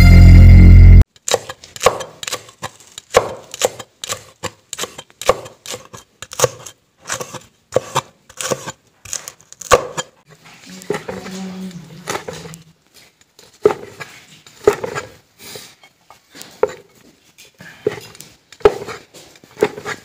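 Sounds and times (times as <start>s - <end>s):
logo jingle: 0.0s - 1.0s
cleaver chopping on wooden board: 1.3s - 10.1s, 13.6s - 14.0s, 14.6s - 15.1s, 18.6s - 19.0s.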